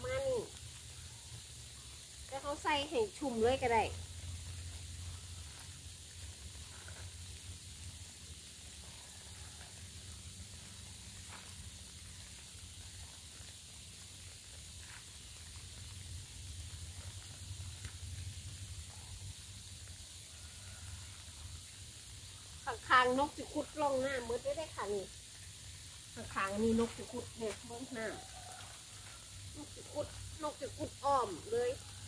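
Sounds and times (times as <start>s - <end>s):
steady hiss: 0.0s - 32.0s
dry leaves rustling and crackling: 2.4s - 18.8s, 26.2s - 32.0s.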